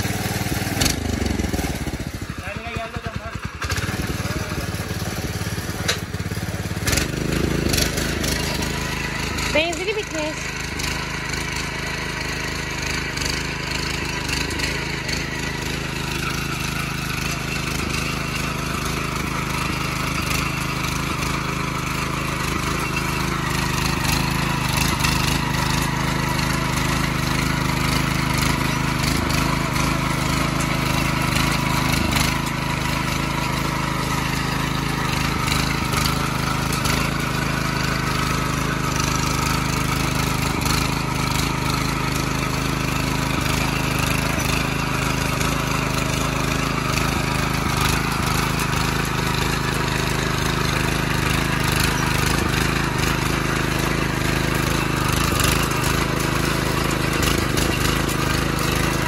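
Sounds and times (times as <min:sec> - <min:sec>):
rotary tiller churning soil: 0:00.0 - 0:59.0.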